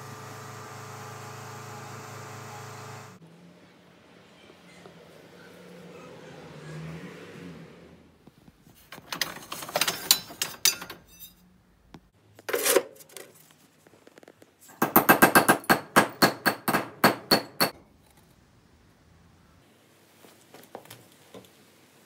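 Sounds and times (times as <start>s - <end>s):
copper pipes clattering: 8.8s - 11.4s
hammer striking metal: 14.8s - 17.8s.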